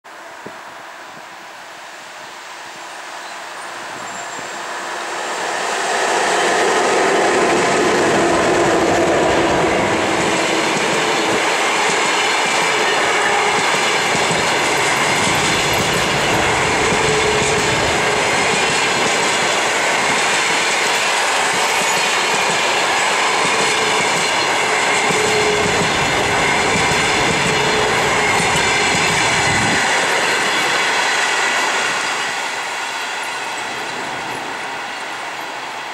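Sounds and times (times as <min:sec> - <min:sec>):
train wheels rumbling on rails: 0:02.1 - 0:35.9
clickety-clack over rail joints: 0:06.1 - 0:35.9.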